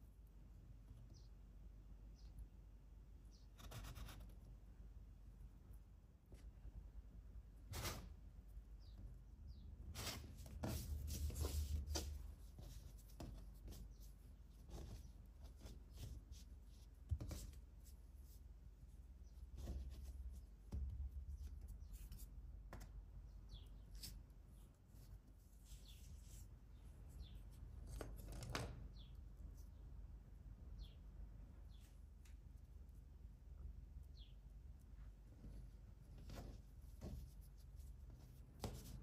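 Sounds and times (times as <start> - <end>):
hands shaping dough on board: 9.8 - 26.6, 34.8 - 39.0.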